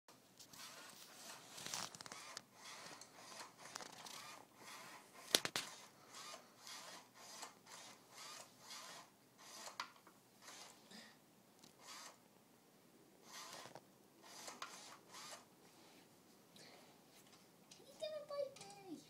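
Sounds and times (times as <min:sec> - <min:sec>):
toy robot motors whirring: 0:00.5 - 0:10.8, 0:11.6 - 0:12.2, 0:13.2 - 0:15.5.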